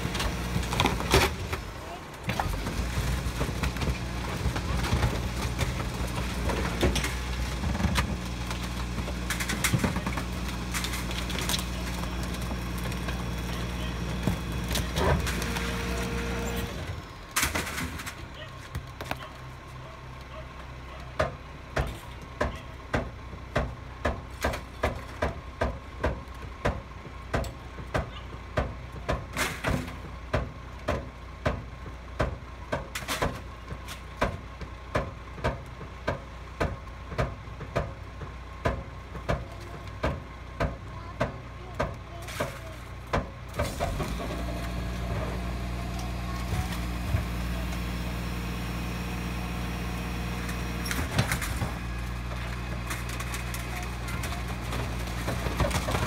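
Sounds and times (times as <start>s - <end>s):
garbage truck idling: 0.0s - 56.0s
hydraulic packer compacting rubbish: 0.0s - 56.0s.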